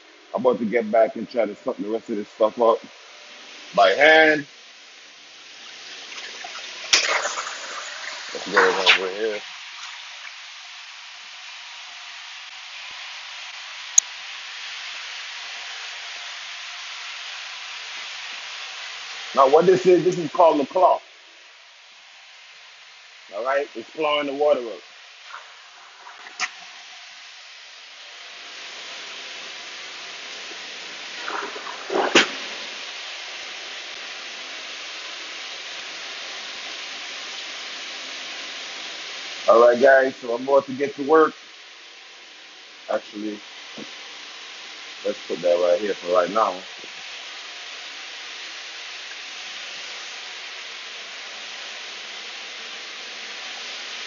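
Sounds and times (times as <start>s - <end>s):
extraction vacuum suction hiss: 0.0s - 54.0s
vacuum suction rush: 6.8s - 9.4s, 31.1s - 33.2s
sharp knock: 31.3s - 32.5s.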